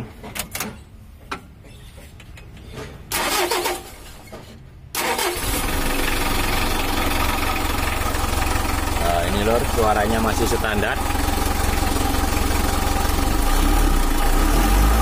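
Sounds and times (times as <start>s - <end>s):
diesel engine starting: 3.1s - 4.1s, 4.9s - 15.0s
diesel engine idling: 5.1s - 15.0s.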